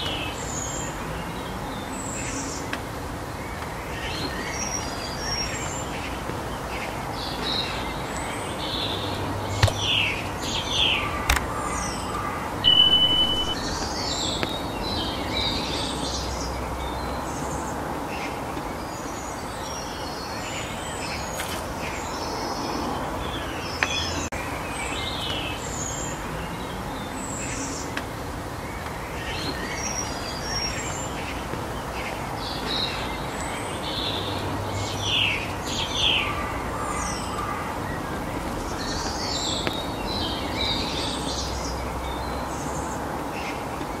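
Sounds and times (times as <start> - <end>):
birds chirping: 0.0 - 44.0
sharp clicks: 11.2 - 11.5.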